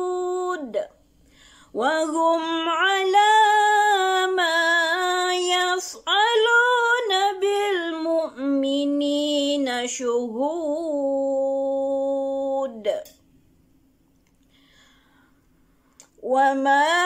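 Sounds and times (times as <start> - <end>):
woman chanting recitation: 1.8 - 13.1.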